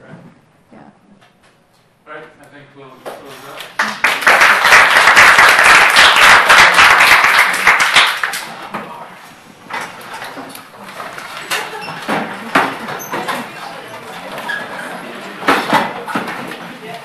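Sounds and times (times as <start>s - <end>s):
audience applauding: 3.7s - 8.6s.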